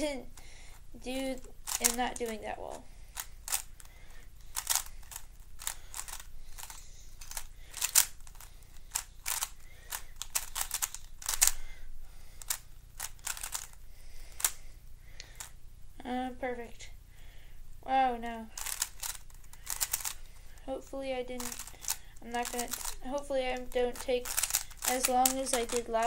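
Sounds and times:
puzzle cube plastic clicks: 0:01.3 - 0:02.4, 0:03.2 - 0:11.7, 0:12.4 - 0:14.6, 0:18.6 - 0:20.6, 0:21.3 - 0:26.0.

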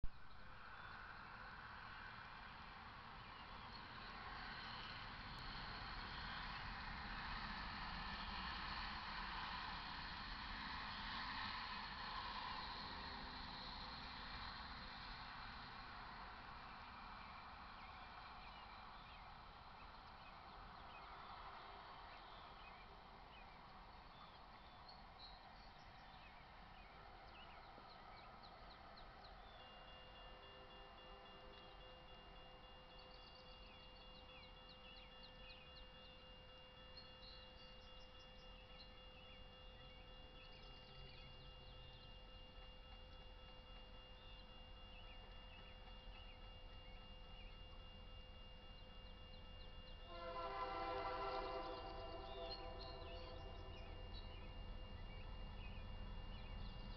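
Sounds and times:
faint steady tone: 0:00.0 - 0:56.9
faint bird chirps: 0:15.0 - 0:56.9
crossing warning bell ringing: 0:26.6 - 0:56.9
loud train horn: 0:50.0 - 0:54.3.

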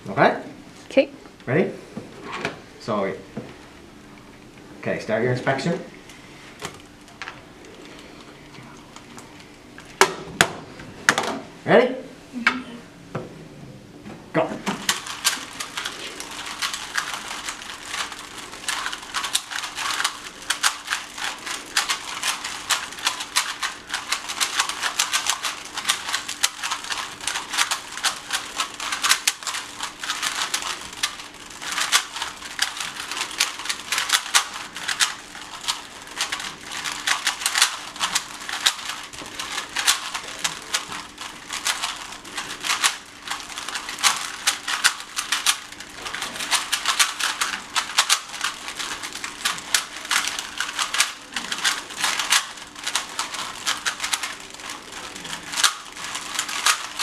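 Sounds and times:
plastic puzzle cubes clicking: 0:14.7 - 0:57.0.

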